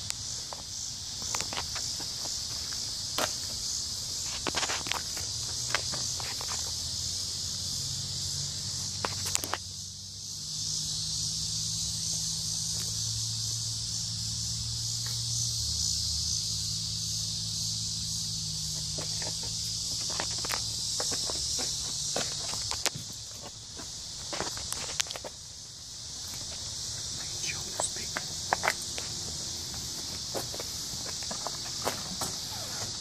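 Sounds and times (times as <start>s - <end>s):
insects chirping: 0.0s - 33.0s.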